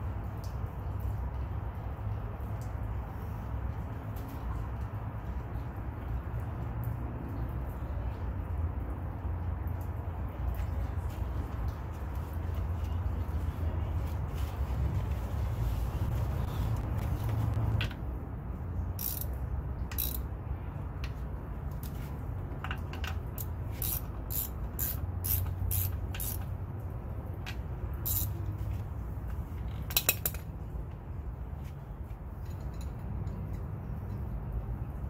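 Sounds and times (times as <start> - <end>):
ratchet wrench clicking: 19.0 - 20.3, 22.9 - 26.5, 28.0 - 28.4.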